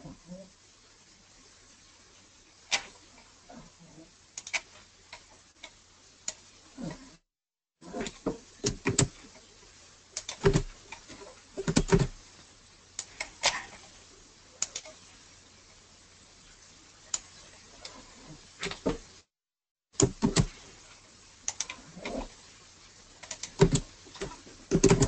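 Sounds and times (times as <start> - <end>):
keyboard taps and mouse clicks: 20.0 - 20.5, 24.7 - 25.0.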